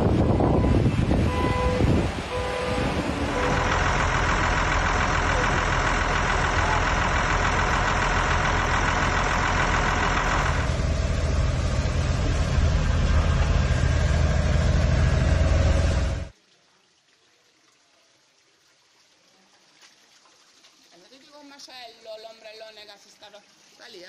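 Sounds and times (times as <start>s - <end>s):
vehicle driving through water: 0.0s - 16.3s
vehicle engine running: 2.2s - 16.3s.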